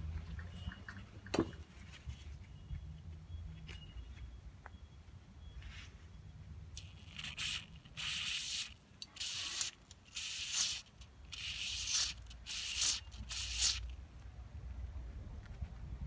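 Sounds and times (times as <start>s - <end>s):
aerosol spray hissing: 7.1s - 13.9s.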